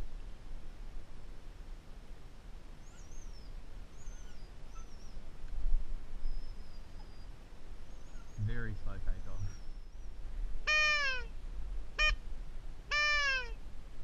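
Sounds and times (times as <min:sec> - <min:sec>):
small birds whistling calls: 0:02.8 - 0:05.2, 0:06.2 - 0:11.2.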